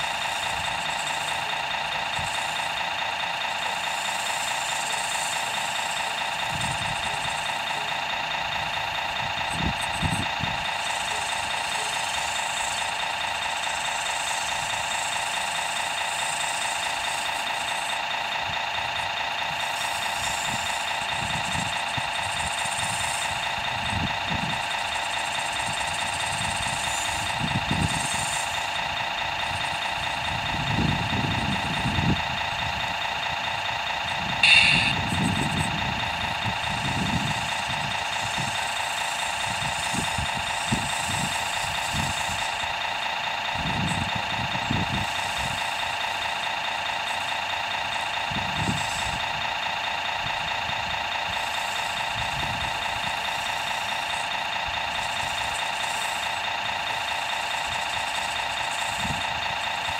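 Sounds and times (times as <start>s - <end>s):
diesel engine idle through small speaker: 0.0s - 59.9s
short sharp burst: 34.4s - 35.2s.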